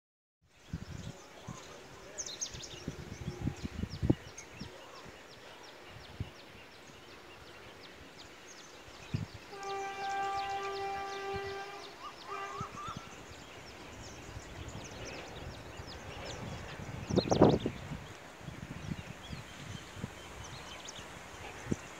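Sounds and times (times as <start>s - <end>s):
train horn blast: 9.4s - 13.2s.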